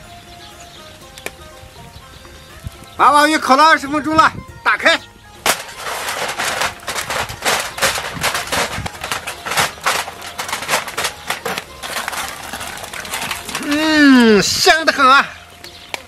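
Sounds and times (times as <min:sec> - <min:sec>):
aluminium foil crinkling and tearing: 0:05.5 - 0:16.0.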